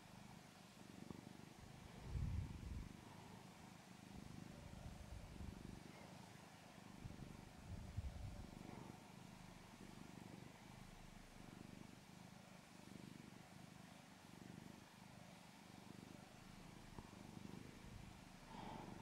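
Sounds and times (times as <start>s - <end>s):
cat purring: 0.0s - 19.0s.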